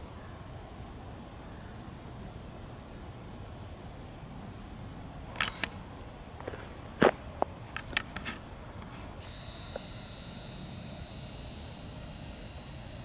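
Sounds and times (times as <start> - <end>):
lens zoom motor whine: 5.4 - 5.7, 9.2 - 13.0.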